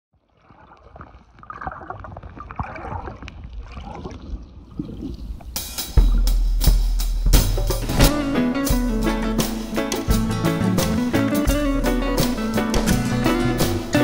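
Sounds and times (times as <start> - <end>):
water gurgling and bubbling: 0.3 - 6.2
music with drums and guitar: 5.5 - 14.0.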